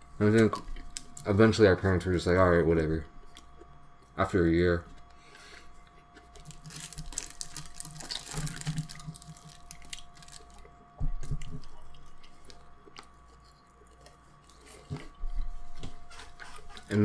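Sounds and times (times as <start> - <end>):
chewing: 5.8 - 17.0
fried chicken crackling: 6.4 - 10.7.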